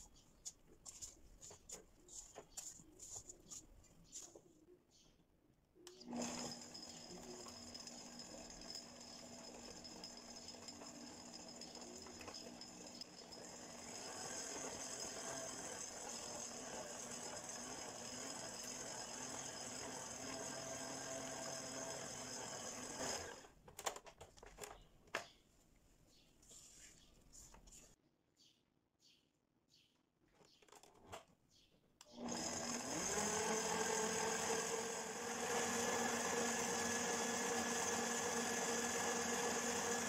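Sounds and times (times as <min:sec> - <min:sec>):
stand mixer motor whining: 0:06.0 - 0:23.5, 0:32.2 - 0:40.0.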